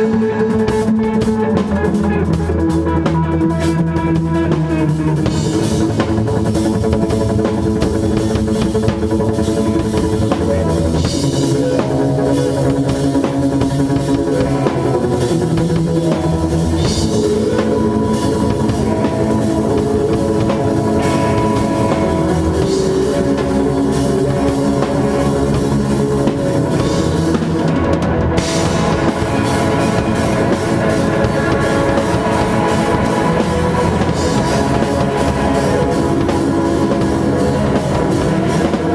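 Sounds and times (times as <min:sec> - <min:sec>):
drum kit: 0:00.0 - 0:38.9
electric guitars: 0:00.0 - 0:38.9
cymbals: 0:08.5 - 0:38.9.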